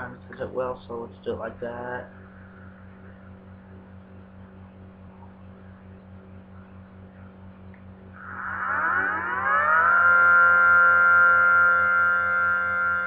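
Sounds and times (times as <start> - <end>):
electrical hum: 0.0 - 13.0
synthesized siren: 8.2 - 13.0.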